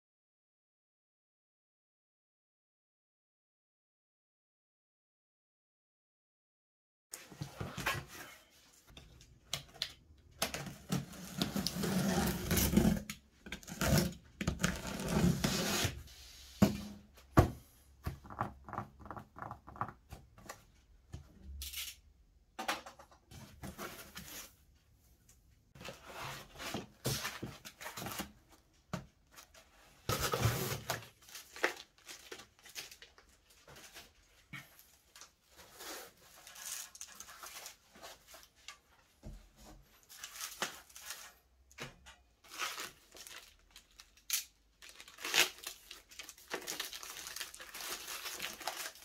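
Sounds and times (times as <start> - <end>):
cardboard and foam rustling: 23.3 - 24.6, 25.8 - 41.5, 44.9 - 49.0
packing tape cut and torn: 42.5 - 49.0.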